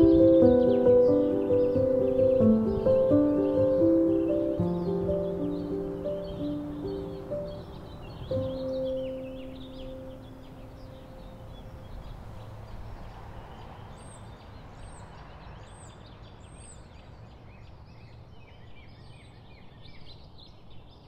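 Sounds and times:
music: 0.0s - 11.3s
birds chirping: 0.0s - 21.0s.

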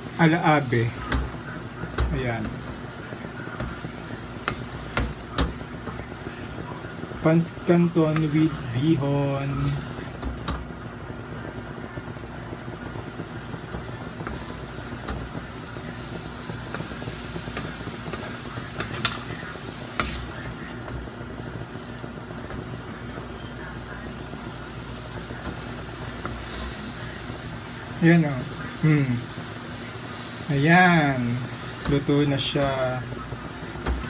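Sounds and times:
spatula stirring noodles in wok: 0.0s - 11.3s, 12.0s - 34.0s
spatula knocking on wok: 4.4s - 6.0s.

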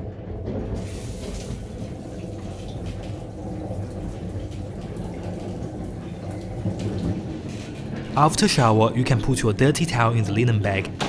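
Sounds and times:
shower water spraying on tiles: 0.8s - 7.8s.

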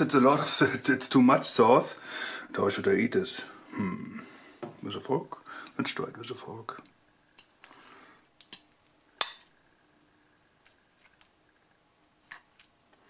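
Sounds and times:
fork clinking on plate: 8.5s - 9.5s.

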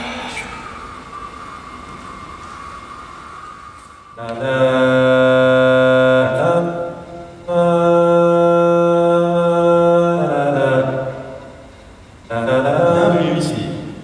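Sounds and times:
man chanting held tones: 4.2s - 11.6s, 12.3s - 14.0s.

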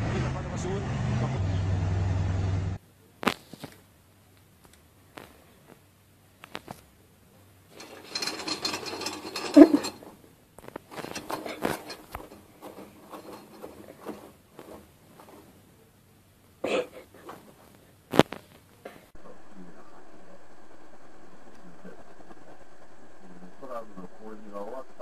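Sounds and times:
cat scratching in litter: 7.7s - 15.6s.

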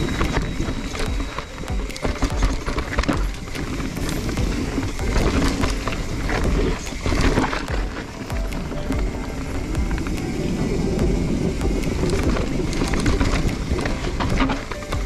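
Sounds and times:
bike rattling and clicking: 0.0s - 15.0s
bike tyres over rocks: 0.0s - 15.0s
low rumble: 0.0s - 15.0s.

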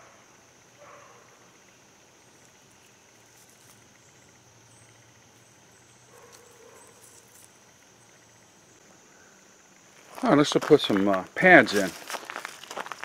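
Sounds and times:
crickets chirring: 0.0s - 13.0s
handling clicks and rustles: 6.1s - 7.6s, 10.0s - 13.0s.

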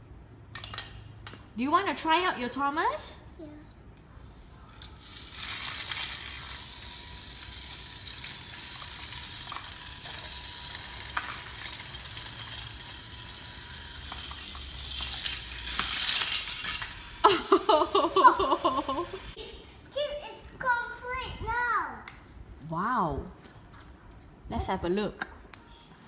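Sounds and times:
toy train clattering: 4.7s - 19.4s
toy train motor whirring: 4.7s - 19.4s.

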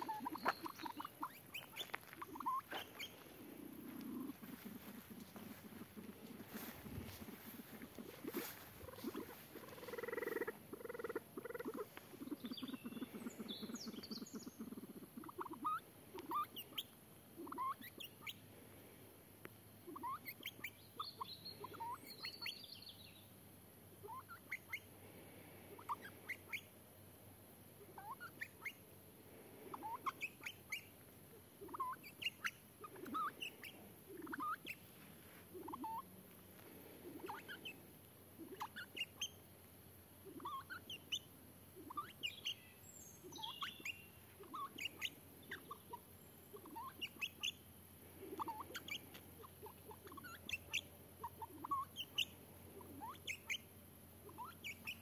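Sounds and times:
pheasant clucking: 0.0s - 18.4s, 19.8s - 22.5s, 25.7s - 26.8s, 27.7s - 28.9s, 29.6s - 39.4s, 40.2s - 47.6s, 48.2s - 55.0s
small bird twittering: 0.0s - 18.4s, 19.9s - 23.2s, 28.0s - 28.8s, 29.7s - 30.9s, 31.6s - 34.8s, 35.6s - 36.1s, 37.0s - 37.8s, 38.4s - 39.4s, 40.3s - 47.6s, 48.3s - 55.0s.

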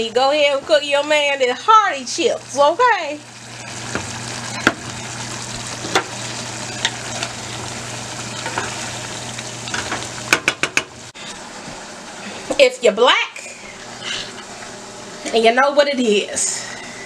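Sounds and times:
chili sizzling in a pot: 0.0s - 17.0s
spoon knocking against pot: 9.8s - 10.9s.

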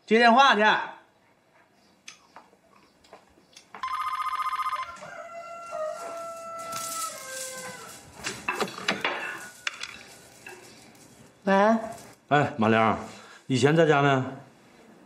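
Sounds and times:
telephone ringing: 3.8s - 5.1s
bead curtain rattling: 6.0s - 12.2s.

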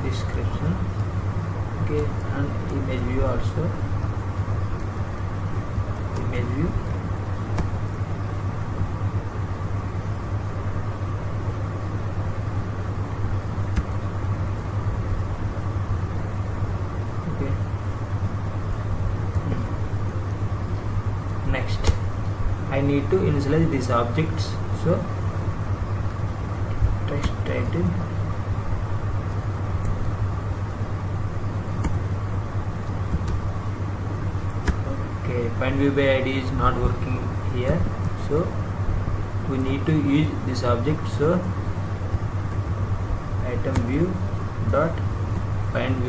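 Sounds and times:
low hum with hiss: 0.0s - 46.0s.

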